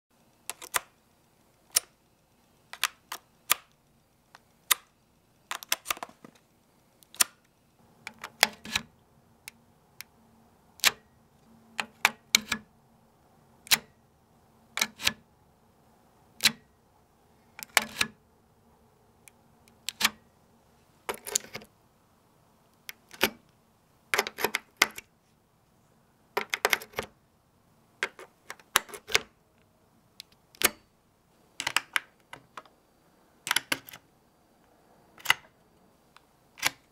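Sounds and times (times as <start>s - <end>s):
flash drive plastic clicks: 2.7s - 3.8s.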